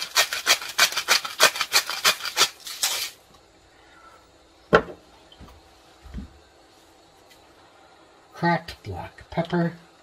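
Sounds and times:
salt grinder crunching: 0.0 - 3.2.

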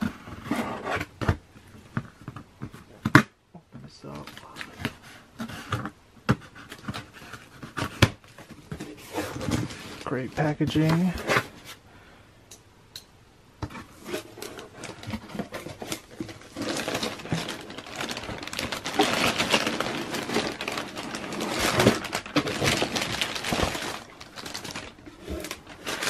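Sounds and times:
plastic bag crinkling: 8.3 - 11.1, 13.9 - 26.0.

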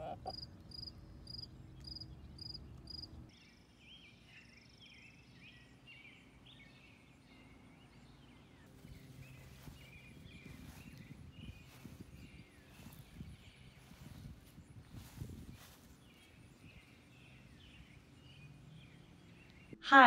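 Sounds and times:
small birds chirping: 0.0 - 19.8
cricket chirping: 0.3 - 3.1.

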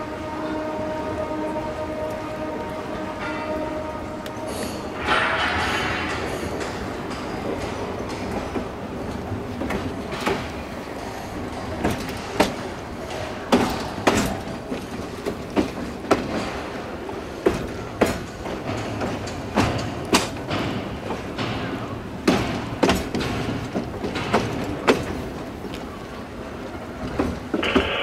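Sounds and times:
train rumble: 0.0 - 28.0
train wheels clacking over rail joints: 1.3 - 28.0.

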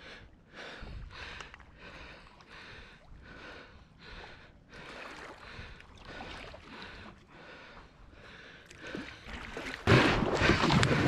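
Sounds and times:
paddle splashing water: 8.6 - 11.0.

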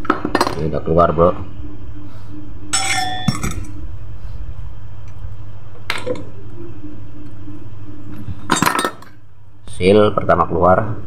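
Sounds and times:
steady low hum: 0.0 - 11.0
metal clinking with ring: 2.7 - 3.8.

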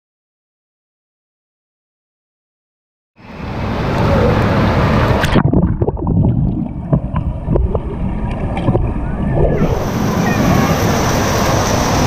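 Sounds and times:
water splashing: 3.5 - 12.0
muffled underwater sound: 3.9 - 12.0
bubbly clicks underwater: 5.2 - 9.7.

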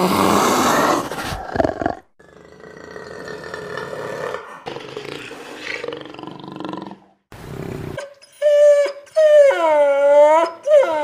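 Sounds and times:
dog whining: 8.0 - 11.0.

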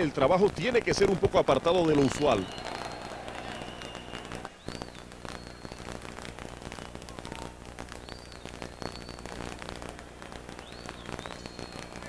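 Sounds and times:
crowd din: 2.0 - 4.5
sharp whistles: 2.0 - 6.0, 7.9 - 9.5, 10.6 - 12.0.

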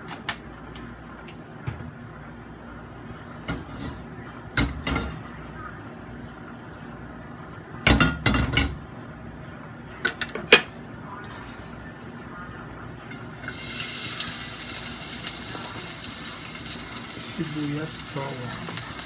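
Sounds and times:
onion sizzling in hot oil: 13.1 - 19.0.

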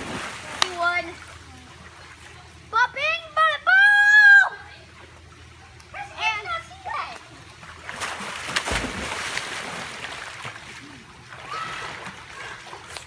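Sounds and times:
splash into swimming pool: 0.0 - 0.9, 7.8 - 13.0
water churning and sloshing: 0.0 - 3.5, 4.6 - 13.0.

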